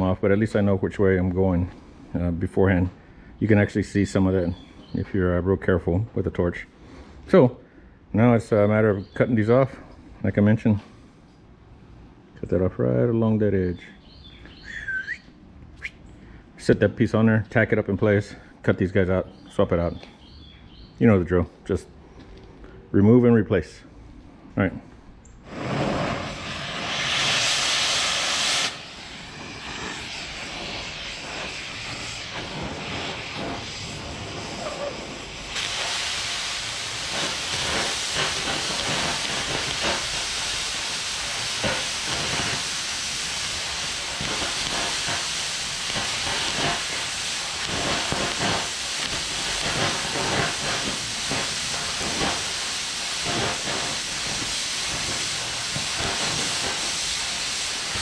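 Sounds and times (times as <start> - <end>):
cutting torch hissing: 25.4 - 58.0
molten metal crackling pops: 25.5 - 58.0.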